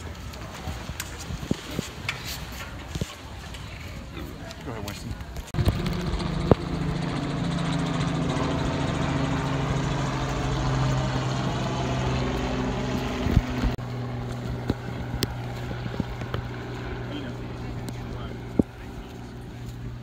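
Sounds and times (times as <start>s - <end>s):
engine humming: 5.5s - 20.0s.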